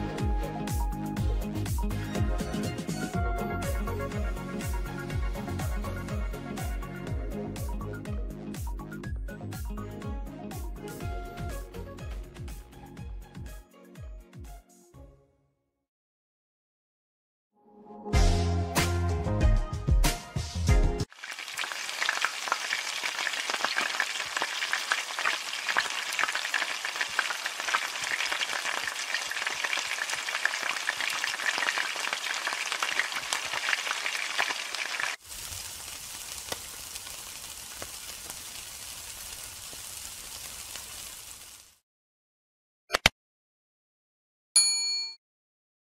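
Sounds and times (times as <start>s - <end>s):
food frying in hot oil: 21.1s - 41.8s
meat skewers sizzling on grill: 21.1s - 41.8s.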